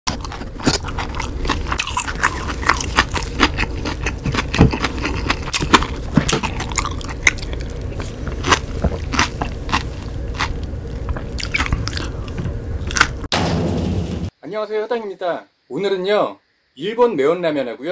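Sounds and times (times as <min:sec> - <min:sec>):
spoon scraping and eating sounds: 0:00.1 - 0:13.0
low steady hum: 0:00.1 - 0:14.3.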